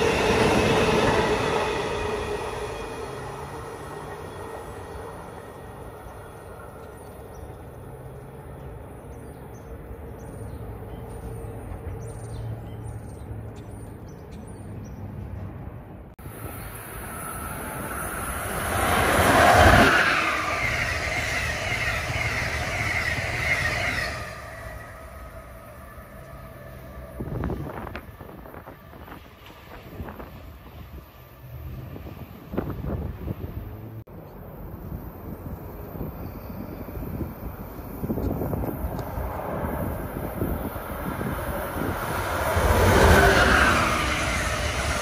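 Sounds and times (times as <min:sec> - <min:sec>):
train rushing past: 0:00.0 - 0:09.0, 0:16.2 - 0:34.1, 0:34.7 - 0:45.0
passenger train passing: 0:00.0 - 0:45.0.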